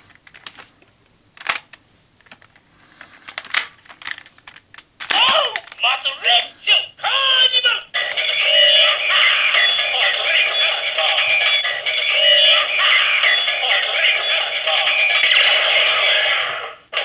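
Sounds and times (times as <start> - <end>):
tinny sung electronic jingle: 7.9 - 16.0.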